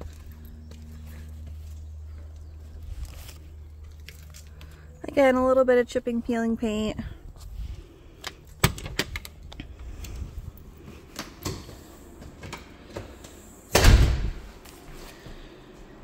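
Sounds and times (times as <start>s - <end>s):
door shutting with heavy thump: 13.7s - 14.4s.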